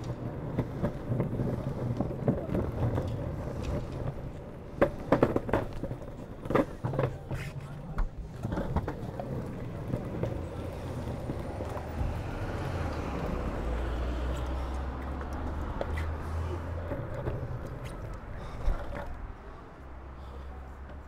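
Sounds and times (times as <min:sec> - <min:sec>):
skateboard wheels rumbling on paving: 0:00.0 - 0:21.0
wheels clicking over joints: 0:00.0 - 0:21.0.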